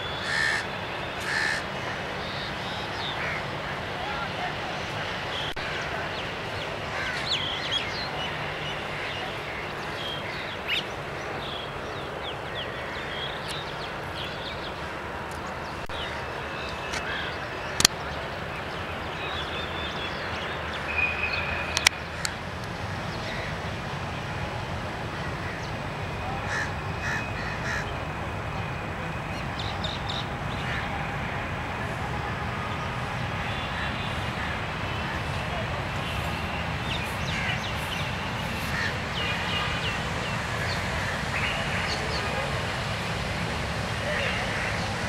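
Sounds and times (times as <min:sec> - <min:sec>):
outdoor background noise: 0:00.0 - 0:45.0
crows cawing: 0:00.2 - 0:02.1, 0:02.7 - 0:03.5, 0:06.9 - 0:07.7, 0:26.5 - 0:27.9, 0:38.6 - 0:39.0, 0:44.1 - 0:44.9.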